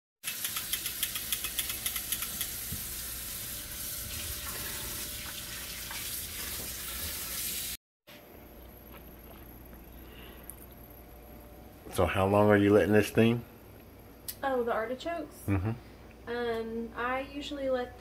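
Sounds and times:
quick ticks: 0.3 - 2.6.

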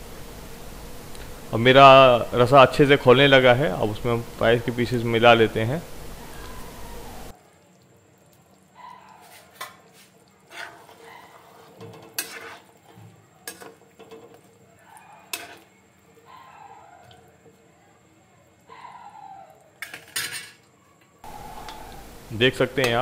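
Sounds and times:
curry boiling: 0.0 - 23.0
metal spoon clinking on pot: 15.3 - 15.7.

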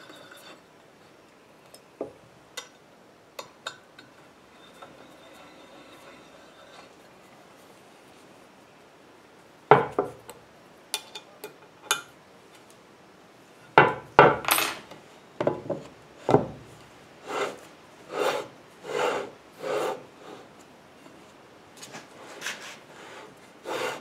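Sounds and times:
table sliding on runners: 4.5 - 7.0, 17.2 - 20.6, 21.9 - 24.0.

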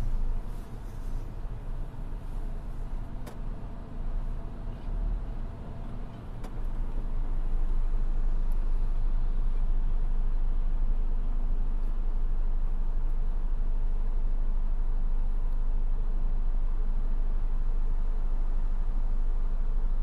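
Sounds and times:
diesel machinery droning: 0.0 - 15.2.

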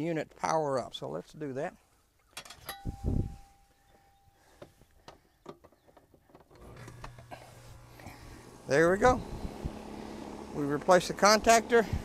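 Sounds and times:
air conditioner unit humming: 6.7 - 12.0.

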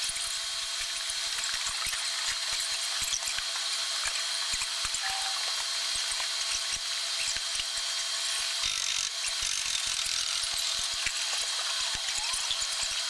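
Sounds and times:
tools clicking and ticking: 8.6 - 13.0.

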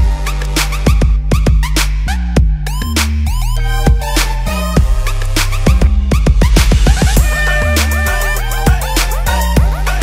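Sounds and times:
electronic music: 0.0 - 10.0
heavy bass line: 0.0 - 10.0
busy drum beat: 5.8 - 10.0.

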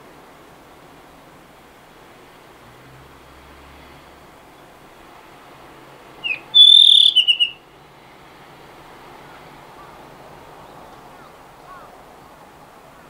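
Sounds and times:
faint steady hiss: 0.0 - 13.0
bird singing whistled phrase: 6.2 - 7.6.

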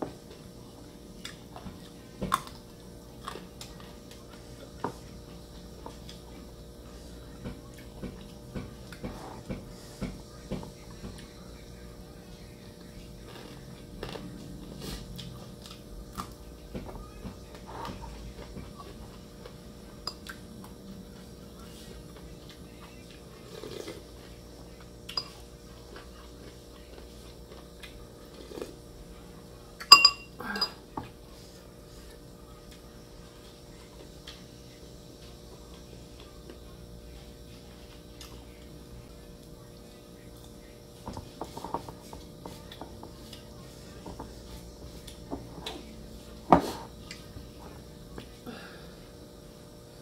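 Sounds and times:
low room hum: 0.0 - 50.0
chewing and mouth clicks: 26.8 - 28.8
metal spoon clinking ceramic bowl: 29.8 - 30.8.

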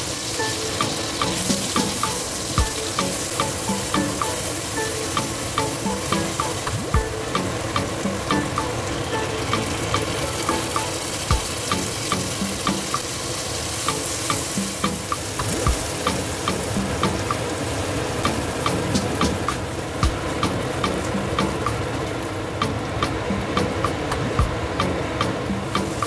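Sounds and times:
paste sizzling in hot oil: 0.0 - 18.3.

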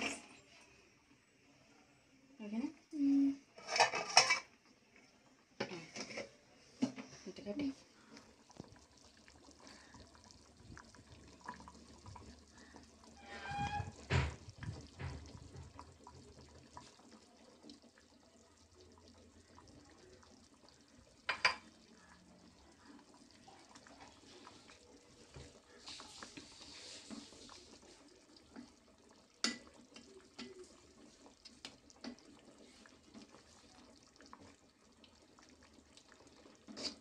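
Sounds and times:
curry bubbling in a pot: 2.8 - 37.0
ladle stirring curry: 21.6 - 34.6.

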